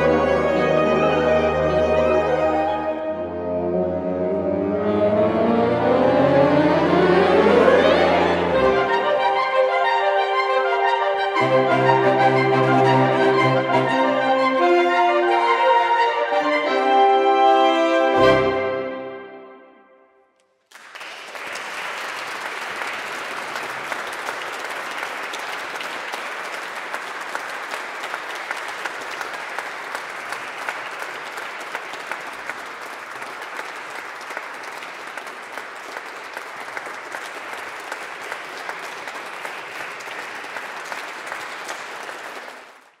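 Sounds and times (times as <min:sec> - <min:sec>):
audience clapping: 0:20.6 - 0:43.0.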